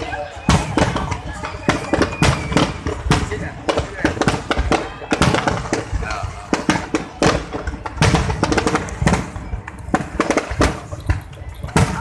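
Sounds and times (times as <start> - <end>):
fireworks bangs and crackles: 0.0 - 12.0.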